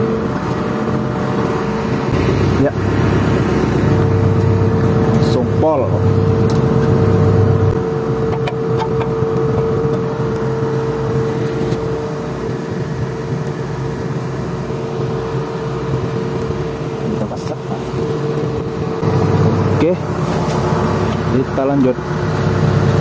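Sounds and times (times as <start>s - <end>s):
diesel engine idling: 0.0s - 12.6s, 17.5s - 23.0s
constant whine: 0.0s - 23.0s.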